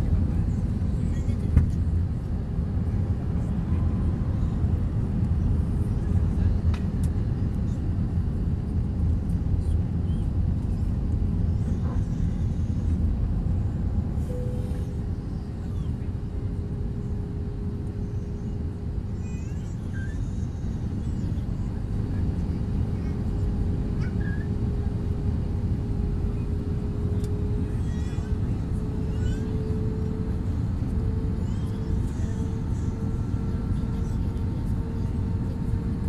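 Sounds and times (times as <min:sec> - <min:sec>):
low rumble of engines and airflow: 0:00.0 - 0:36.0
steady hum: 0:07.9 - 0:19.5.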